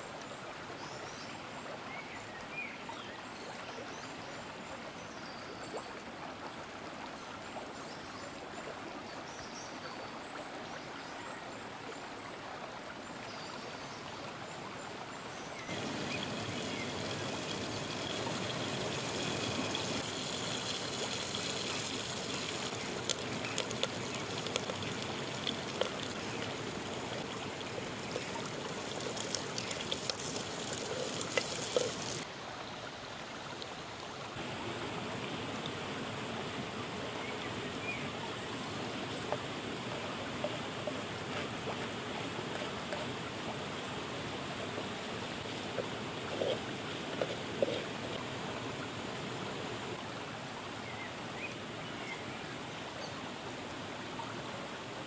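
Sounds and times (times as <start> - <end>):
stream flowing: 0.0 - 55.0
hot oil sizzling: 15.7 - 32.2
crackles and pops: 22.3 - 27.3.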